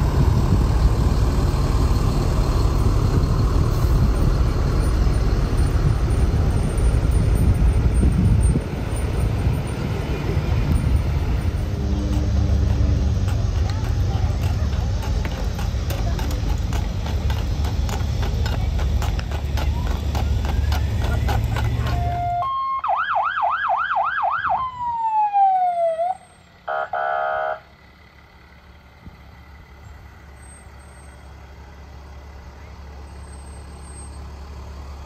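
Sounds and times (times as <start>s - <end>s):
horse hooves clopping on pavement: 0.0s - 22.5s
truck engine running: 0.0s - 23.4s, 25.8s - 35.0s
wagon rolling: 4.2s - 22.4s
truck horn blast: 21.8s - 22.7s, 26.6s - 27.7s
fire truck siren: 21.8s - 27.7s.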